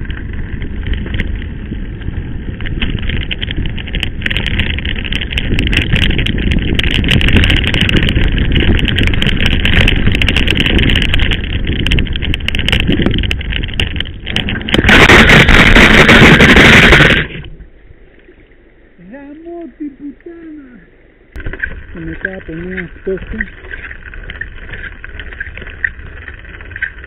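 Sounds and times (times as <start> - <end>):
bike crashing: 0.0 - 17.5
bike rattling on dirt track: 0.0 - 17.5, 21.4 - 27.0
tyre noise: 0.0 - 17.6, 21.4 - 27.0
wind: 0.0 - 27.0.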